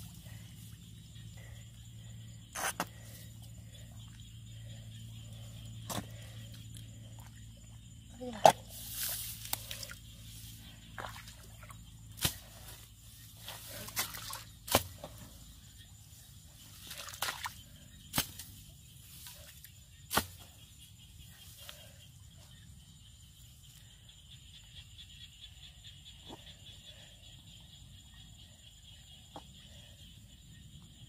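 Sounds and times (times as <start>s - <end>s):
mud squelching and sloshing: 10.8s - 12.7s, 13.3s - 15.2s, 16.8s - 18.4s.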